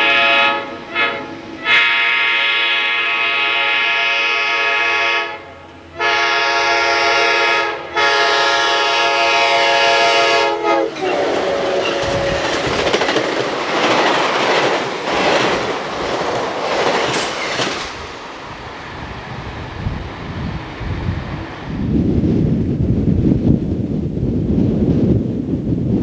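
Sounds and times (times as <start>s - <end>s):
locomotive air horn blasts: 0.0s - 12.6s
train wheels clattering on rails: 10.8s - 20.8s.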